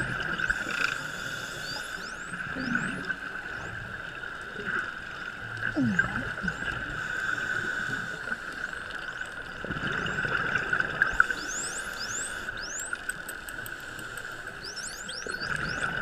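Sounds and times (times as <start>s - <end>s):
dolphins whistling underwater: 11.0s - 16.0s.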